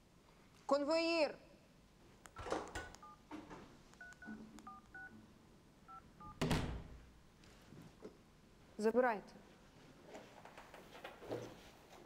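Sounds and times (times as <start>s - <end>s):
telephone keypad beeps: 2.7s - 3.2s, 4.0s - 5.1s, 5.9s - 6.4s.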